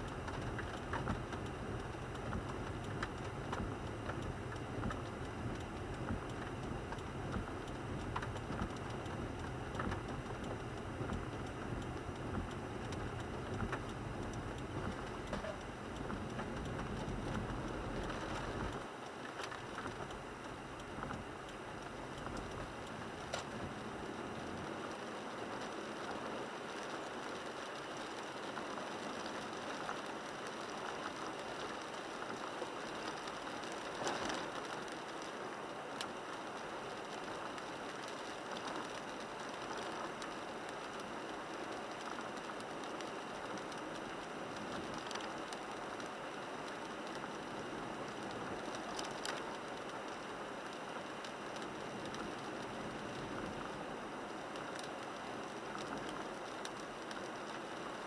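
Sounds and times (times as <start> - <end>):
rain and tyres on wet road: 0.0 - 58.0
faint clicks: 37.0 - 53.8, 54.5 - 58.0.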